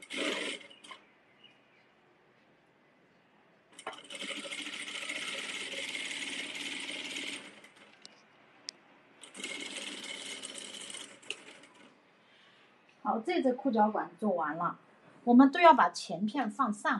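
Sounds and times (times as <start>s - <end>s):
sewing machine stitching: 0.0s - 1.0s, 3.8s - 8.0s, 9.2s - 11.9s.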